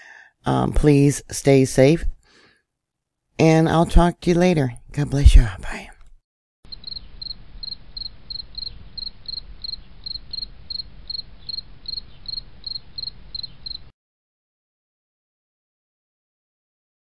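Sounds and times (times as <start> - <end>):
cricket-like insect chirping: 6.7 - 13.9.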